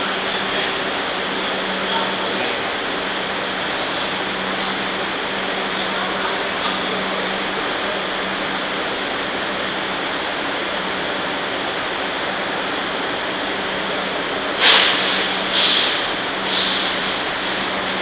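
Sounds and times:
subway car equipment humming: 0:00.0 - 0:18.0
loud air hisses: 0:14.4 - 0:18.0.

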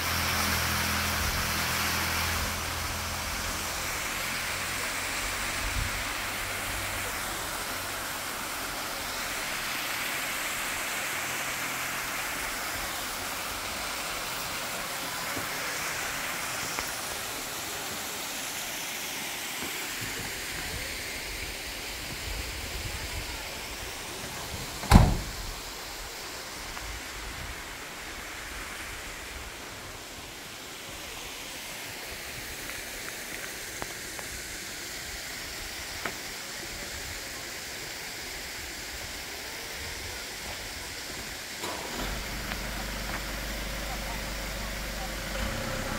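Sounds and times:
waterfall rushing: 0:00.0 - 0:45.9
van door slamming: 0:24.8 - 0:25.5.

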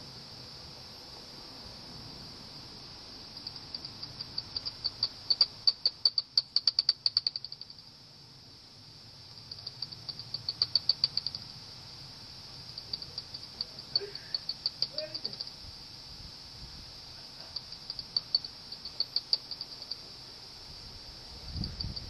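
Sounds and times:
bat detector hiss: 0:00.0 - 0:22.0
bat echolocation clicks: 0:03.4 - 0:07.8, 0:09.4 - 0:11.5, 0:12.6 - 0:15.6, 0:17.5 - 0:20.0, 0:21.6 - 0:22.0.

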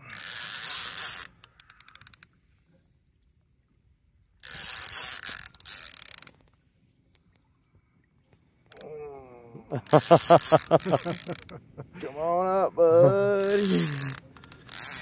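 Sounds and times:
fishing reel drag screaming: 0:00.0 - 0:02.3, 0:04.4 - 0:06.3, 0:09.8 - 0:11.5, 0:13.4 - 0:15.0.

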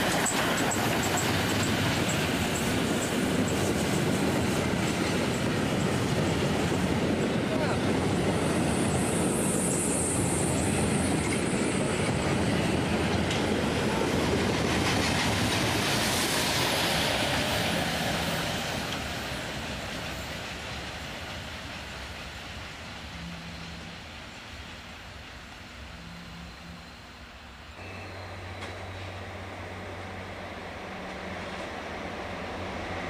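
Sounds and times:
train wheels clattering over rail joints: 0:00.0 - 0:07.2, 0:10.9 - 0:22.6
steam locomotive hiss: 0:00.0 - 0:33.0.

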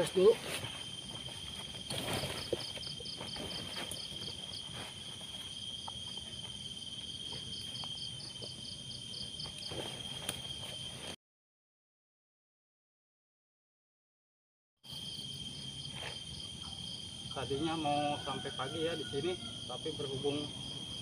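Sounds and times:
insect continuous high trill: 0:00.0 - 0:11.2, 0:14.9 - 0:21.0
faint rustles and knocks: 0:00.4 - 0:06.6.

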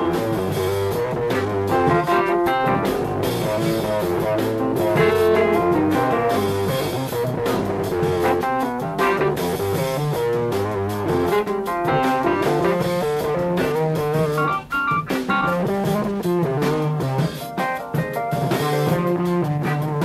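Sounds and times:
electric bass: 0:00.0 - 0:17.4, 0:18.3 - 0:20.0
drum kit: 0:00.0 - 0:20.0
electric guitar lines: 0:00.0 - 0:20.0.

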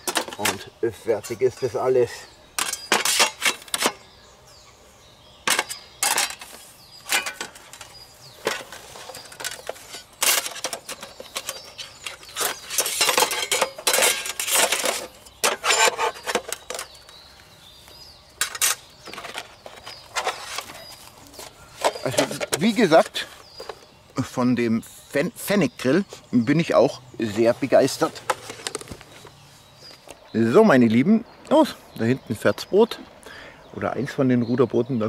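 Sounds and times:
metal grill panels clattering: 0:05.5 - 0:17.0.

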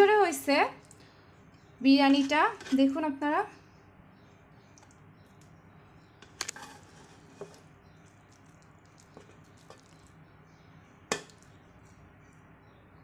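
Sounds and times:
spoon rustling rice: 0:06.2 - 0:10.2
spoon knocking against pot: 0:11.1 - 0:11.4.

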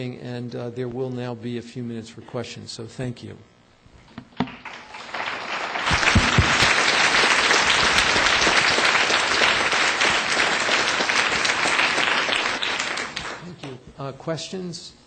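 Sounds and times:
audience applauding: 0:04.4 - 0:13.8.

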